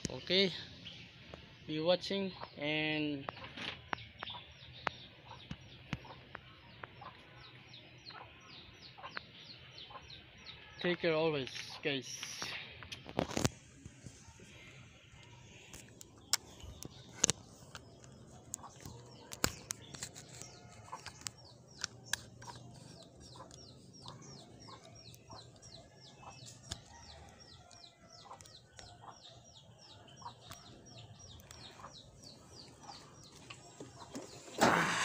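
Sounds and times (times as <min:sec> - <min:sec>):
chicks peeping: 0:02.2 - 0:10.6, 0:11.5 - 0:35.0
chickens clucking: 0:02.3 - 0:10.3, 0:11.5 - 0:35.0
scooter engine starting: 0:34.2 - 0:35.0.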